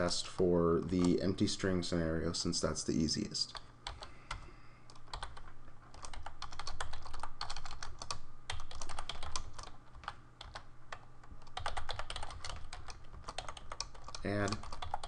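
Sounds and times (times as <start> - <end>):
faint low hum: 0.0 - 15.0
typing on keyboard: 3.5 - 15.0.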